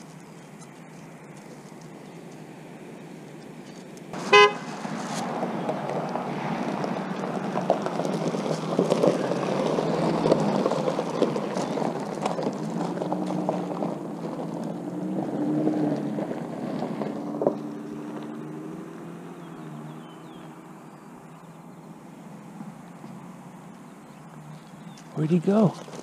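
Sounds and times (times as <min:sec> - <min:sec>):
tyres crunching on gravel: 0:00.0 - 0:21.8, 0:22.6 - 0:26.0
vehicle engine running: 0:00.0 - 0:26.0
short loud beep: 0:04.3 - 0:04.6.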